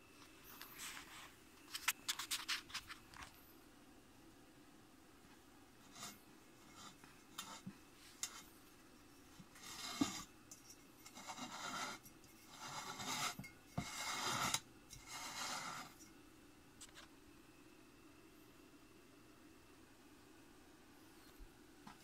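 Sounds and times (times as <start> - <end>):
fingertips rubbing metal: 9.4 - 16.1.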